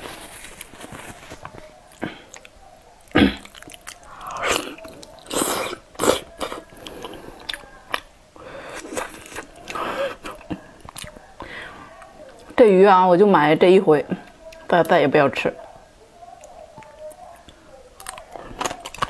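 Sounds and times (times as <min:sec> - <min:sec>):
person biting and chewing: 0:03.1 - 0:08.1, 0:08.7 - 0:11.2, 0:18.0 - 0:19.0.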